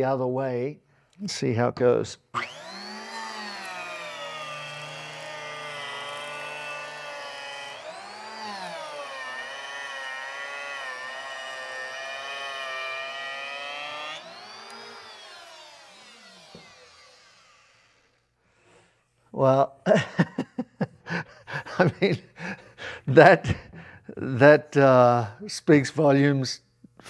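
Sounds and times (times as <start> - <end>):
electric planer whining: 2.4 - 18.8.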